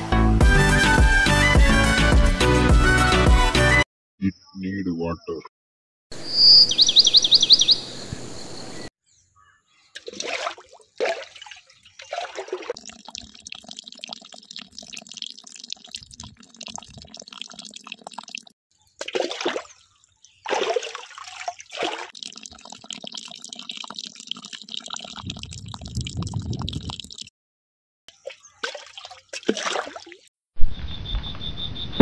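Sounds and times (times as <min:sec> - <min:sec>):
water pouring and splashing: 0:09.9 - 0:27.3, 0:28.1 - 0:30.3
water trickling: 0:10.0 - 0:27.3, 0:28.1 - 0:30.3.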